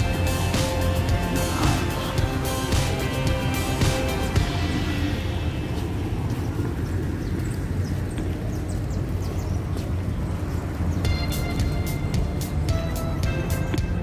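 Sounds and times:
background music: 0.0s - 7.4s, 11.0s - 14.0s
passing cars rumbling: 0.0s - 14.0s.

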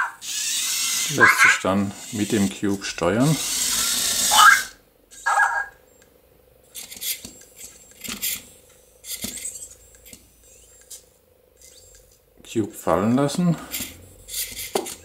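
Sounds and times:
toy robot motor whir: 0.0s - 5.7s, 6.7s - 12.2s, 13.7s - 15.0s
faint steady hum: 0.0s - 15.0s.

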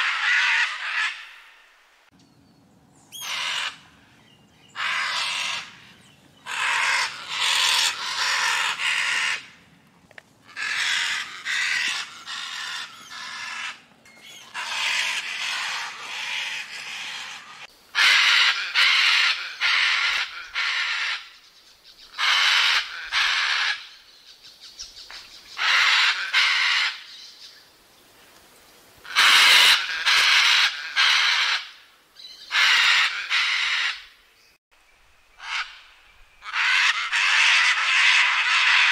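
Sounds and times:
macaw screaming: 0.0s - 1.6s, 3.1s - 3.9s, 4.7s - 9.6s, 10.5s - 13.8s, 14.4s - 21.4s, 22.1s - 24.0s, 25.6s - 27.1s, 29.1s - 31.8s, 32.4s - 34.1s, 35.4s - 38.9s.

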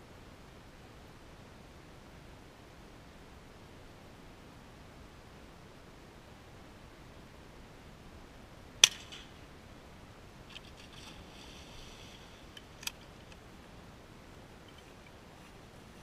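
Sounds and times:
shotgun shot: 8.8s - 9.4s.

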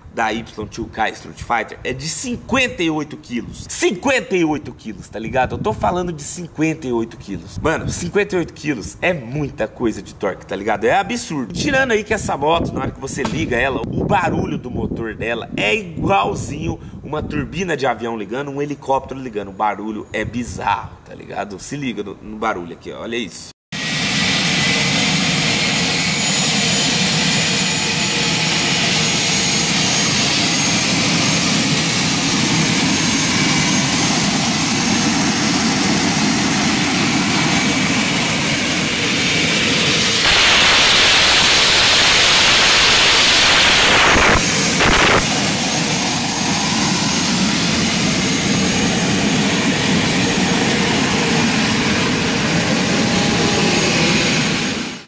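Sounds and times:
gas turbine engine whine: 23.8s - 55.0s
hissy rush: 31.4s - 46.0s.

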